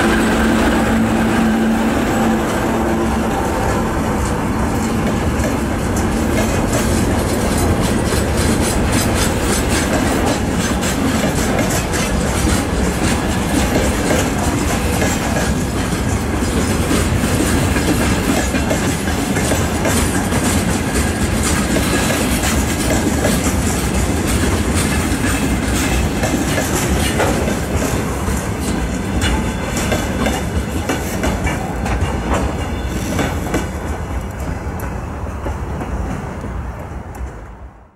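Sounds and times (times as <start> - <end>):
train wheels clacking on rails: 0.0 - 37.4.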